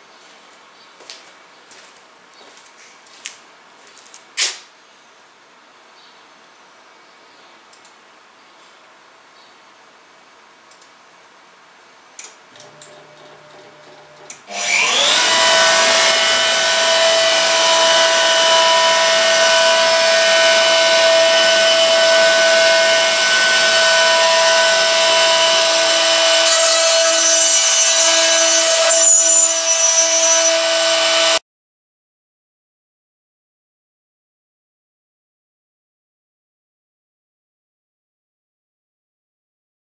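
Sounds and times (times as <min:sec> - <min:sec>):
router spindle whining: 0:12.5 - 0:31.4.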